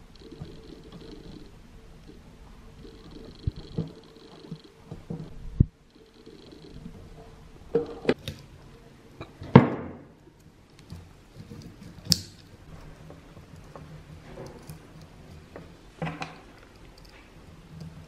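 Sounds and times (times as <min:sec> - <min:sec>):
wire rustling: 0:10.2 - 0:18.0.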